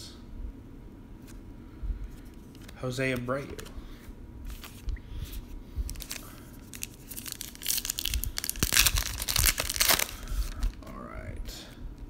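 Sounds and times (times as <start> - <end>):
foil wrapper tearing and crinkling: 5.9 - 10.8.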